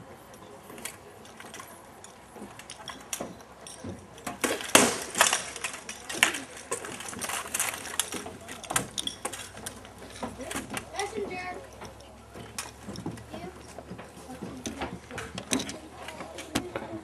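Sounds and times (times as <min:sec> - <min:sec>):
weapons striking shields and armour: 0:03.9 - 0:11.5.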